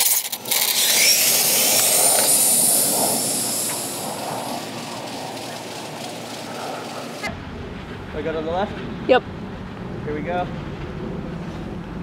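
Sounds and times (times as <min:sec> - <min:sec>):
rc car motor whining: 0:00.0 - 0:07.2
rushing noise: 0:00.3 - 0:12.0.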